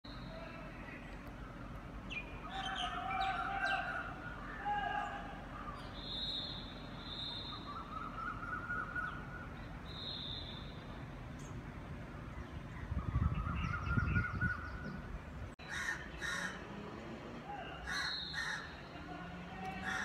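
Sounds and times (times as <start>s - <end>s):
crow cawing: 15.6s - 16.6s, 17.8s - 18.8s.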